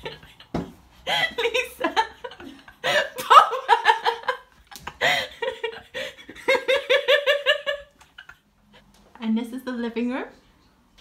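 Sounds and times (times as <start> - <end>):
woman laughing: 0.0 - 8.4.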